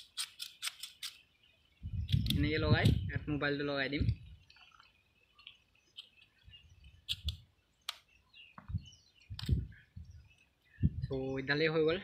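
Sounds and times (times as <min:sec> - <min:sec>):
faint bird chirps: 0:04.2 - 0:11.8.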